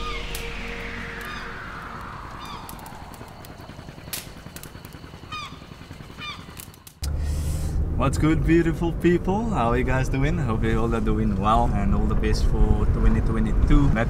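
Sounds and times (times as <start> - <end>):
whoosh sweeping down in pitch: 0.0 - 3.9.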